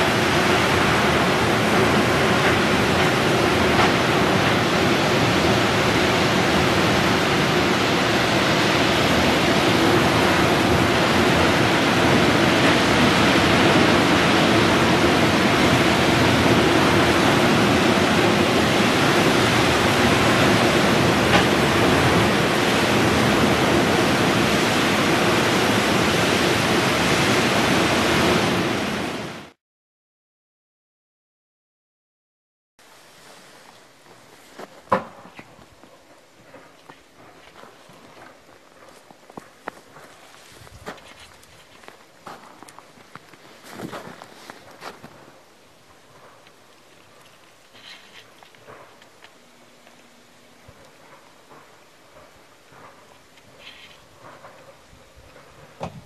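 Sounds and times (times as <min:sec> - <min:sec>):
blizzard wind blowing: 0:00.0 - 0:29.6, 0:35.6 - 0:47.2.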